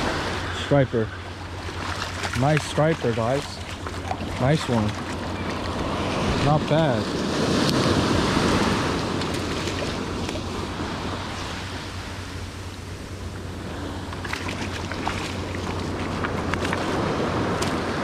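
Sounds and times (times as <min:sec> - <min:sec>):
small surf washing on beach: 0:00.0 - 0:12.8.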